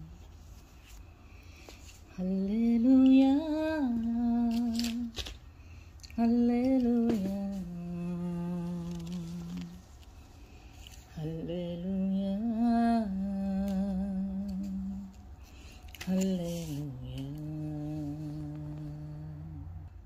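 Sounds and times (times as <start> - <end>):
woman singing unaccompanied: 0.0 - 0.2, 2.1 - 5.3, 6.0 - 10.0, 11.1 - 15.3, 16.0 - 19.9.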